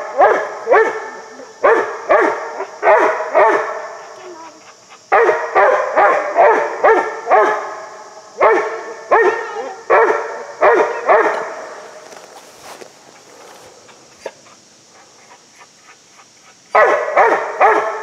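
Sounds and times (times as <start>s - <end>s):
puppy barking: 0.1s - 4.3s, 5.1s - 7.7s, 8.4s - 11.6s, 16.7s - 18.0s.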